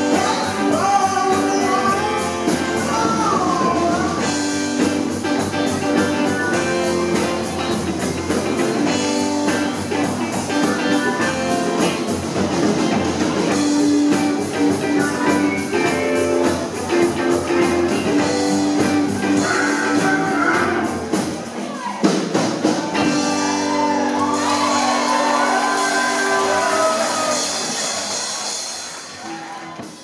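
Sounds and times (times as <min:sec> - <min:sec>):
electric guitars: 0:00.0 - 0:21.6, 0:22.6 - 0:30.0
keyboard: 0:00.0 - 0:21.6
drums and percussion: 0:00.0 - 0:30.0.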